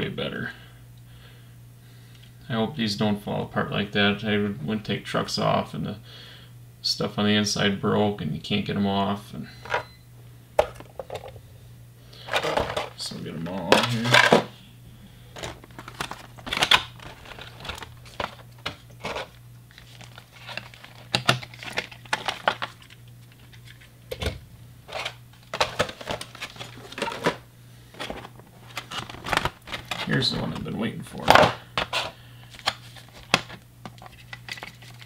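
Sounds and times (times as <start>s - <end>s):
plastic packaging crinkling: 12.2s - 14.5s, 15.2s - 24.0s, 24.8s - 35.0s.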